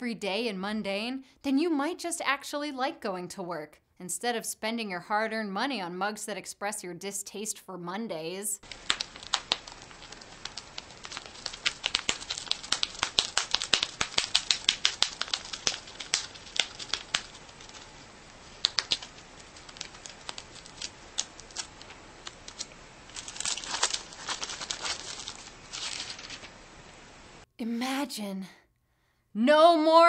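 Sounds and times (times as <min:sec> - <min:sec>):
rabbit chewing paper: 0:08.6 - 0:27.2.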